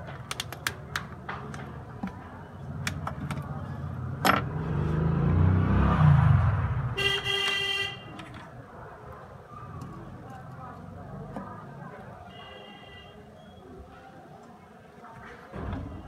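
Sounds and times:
plastic clips clicking: 0:00.0 - 0:01.7
passing vehicle rumble: 0:02.6 - 0:07.0
vehicle horn: 0:06.9 - 0:08.2, 0:12.3 - 0:13.2.

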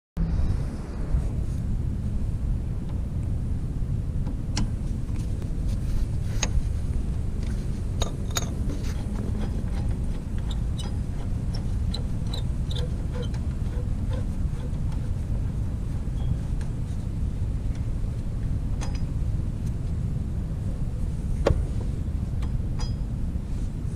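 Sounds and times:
low rumble: 0:00.2 - 0:23.9
ratchet clicking: 0:07.4 - 0:15.1.

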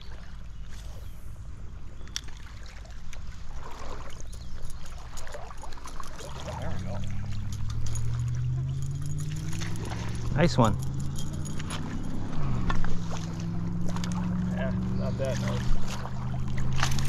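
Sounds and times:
stream water running: 0:00.0 - 0:17.0
vehicle engine hum: 0:06.1 - 0:17.0.

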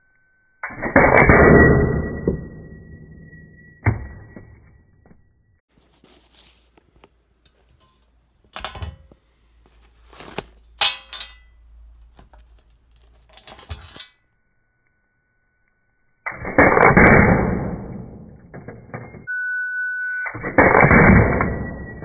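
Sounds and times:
handling rustling: 0:05.7 - 0:14.1.

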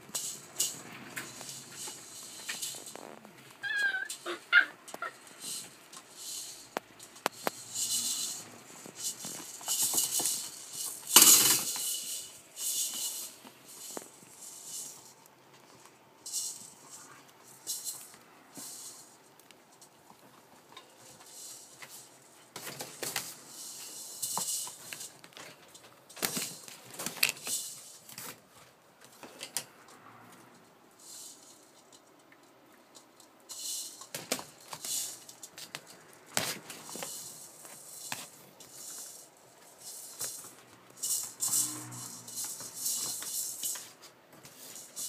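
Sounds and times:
rustling of bedding: 0:33.4 - 0:45.0.

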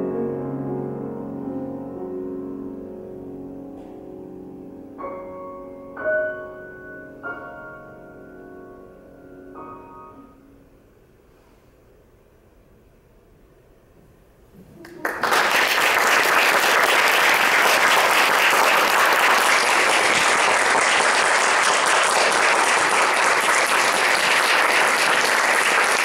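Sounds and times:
audience applause: 0:14.8 - 0:26.0.

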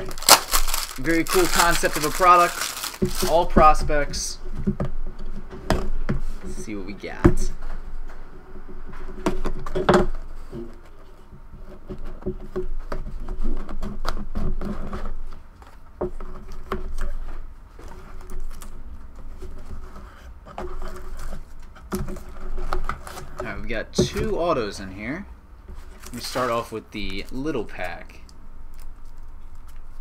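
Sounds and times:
cardboard scraping and rustling: 0:00.0 - 0:04.2, 0:09.0 - 0:24.8, 0:25.7 - 0:28.1.

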